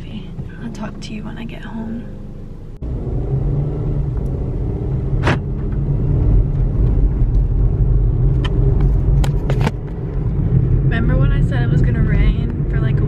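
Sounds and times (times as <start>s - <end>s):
engine and road rumble: 0.0s - 13.0s.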